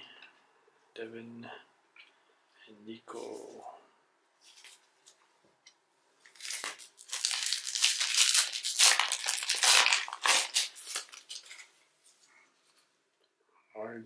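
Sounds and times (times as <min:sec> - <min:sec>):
wrapper crinkling: 0:06.2 - 0:11.8.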